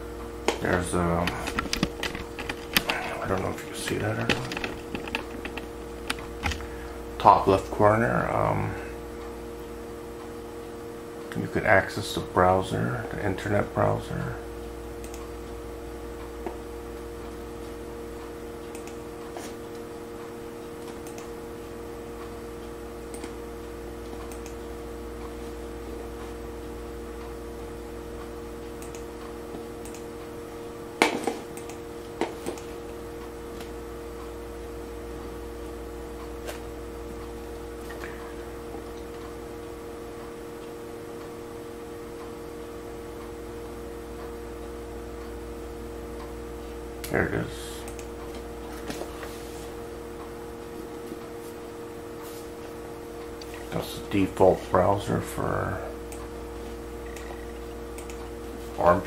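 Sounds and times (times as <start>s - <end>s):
low electrical hum: 0.0s - 59.0s
sharp clicks: 15.0s - 15.3s, 18.7s - 19.0s, 20.8s - 21.3s, 24.2s - 24.6s, 28.8s - 29.1s, 29.8s - 30.1s, 31.6s - 31.8s, 47.8s - 48.1s, 57.1s - 58.3s.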